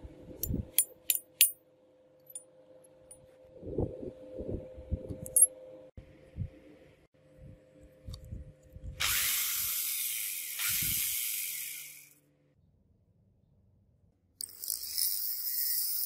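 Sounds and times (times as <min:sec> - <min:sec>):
electric drill running: 0:09.0 - 0:12.1.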